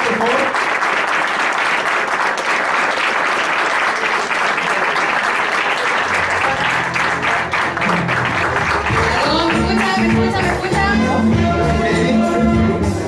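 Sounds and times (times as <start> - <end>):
audience applauding: 0.0 - 10.8
music with bass line: 6.3 - 13.0.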